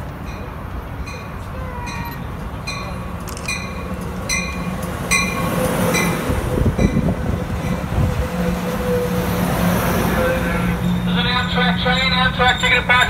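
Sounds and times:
train cars rumbling past: 0:00.0 - 0:13.0
train bell ringing: 0:00.2 - 0:13.0.

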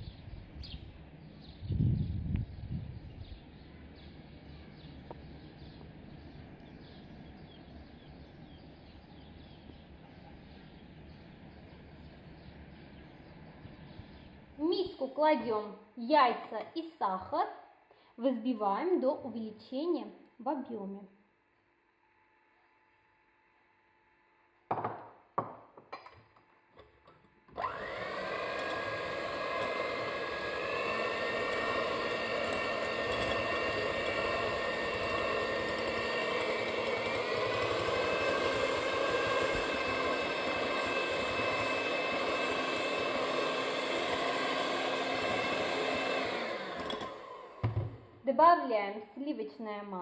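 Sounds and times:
electric hand mixer whining: 0:27.5 - 0:48.2.

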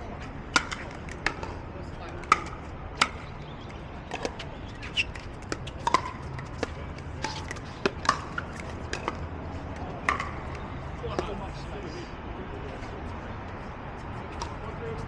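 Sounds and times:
ball bouncing on hard court: 0:04.1 - 0:09.2, 0:10.0 - 0:11.3.

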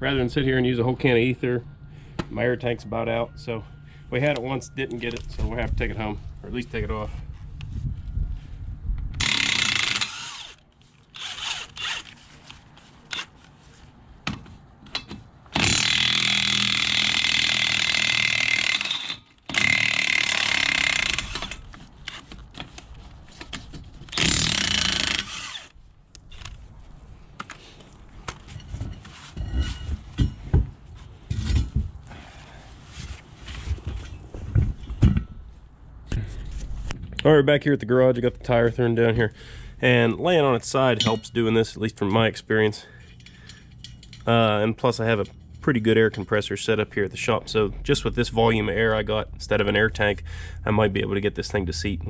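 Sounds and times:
impact wrench running: 0:09.2 - 0:10.6, 0:11.2 - 0:12.2, 0:15.6 - 0:21.6, 0:24.1 - 0:25.7.

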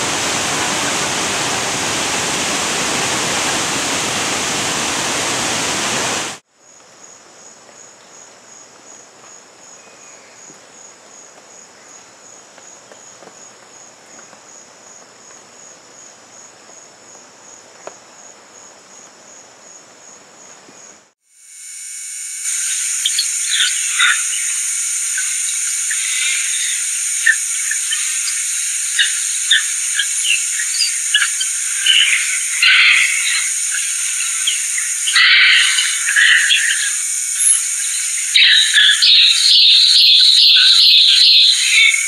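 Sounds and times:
waterfall rushing: 0:00.0 - 0:06.4
rainforest ambience: 0:00.0 - 0:42.0
insect trilling: 0:21.4 - 0:42.0.

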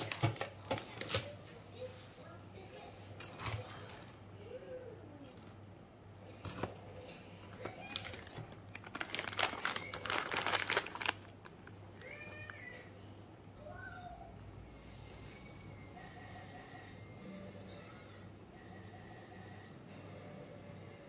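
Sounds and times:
plastic pouch crinkling: 0:00.0 - 0:01.4, 0:07.6 - 0:11.8
peanuts rattling: 0:07.6 - 0:11.7.

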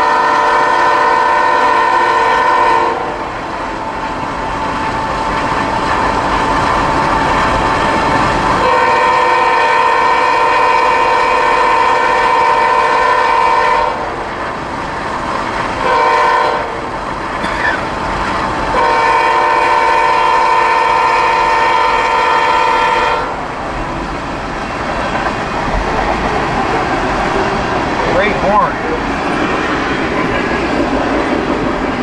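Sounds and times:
locomotive air horn: 0:00.0 - 0:03.2, 0:08.6 - 0:14.1, 0:15.8 - 0:16.8, 0:18.7 - 0:23.4
train rumbling past: 0:00.0 - 0:32.0.

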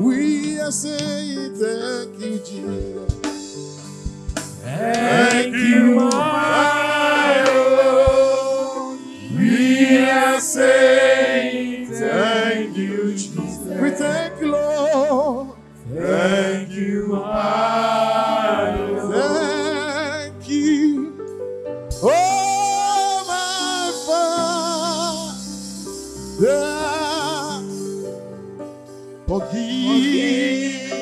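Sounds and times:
gospel choir singing: 0:00.0 - 0:02.6, 0:04.6 - 0:21.1, 0:22.0 - 0:28.4, 0:29.2 - 0:31.0
sustained accompaniment chords: 0:04.0 - 0:22.2.

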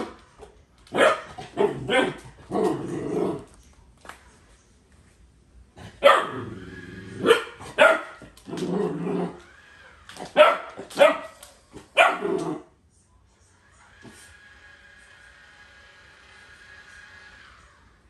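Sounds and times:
puppy barking: 0:00.9 - 0:02.2, 0:06.0 - 0:06.4, 0:07.2 - 0:08.3, 0:10.3 - 0:11.4, 0:12.0 - 0:12.4.

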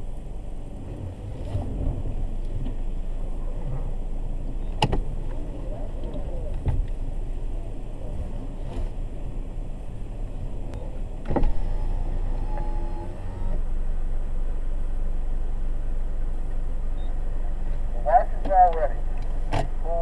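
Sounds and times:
car idling: 0:00.0 - 0:20.0
brief steady whine: 0:10.7 - 0:13.6.

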